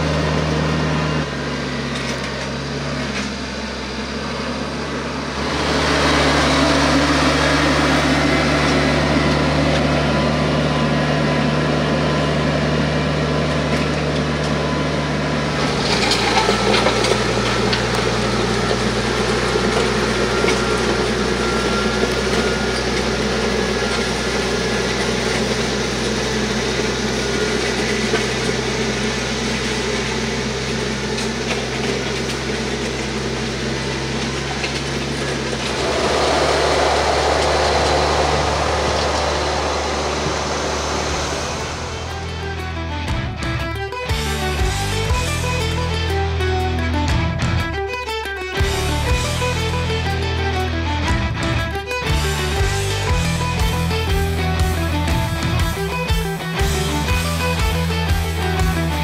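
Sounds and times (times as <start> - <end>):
tractor diesel engine running: 0.0 - 59.0
soil scraping under blades: 13.4 - 42.4.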